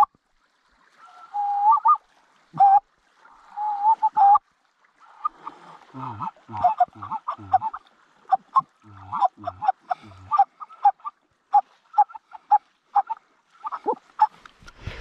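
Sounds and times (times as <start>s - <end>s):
deeper goose call notes: 6.0s - 14.4s
goose call honks: 6.0s - 14.4s.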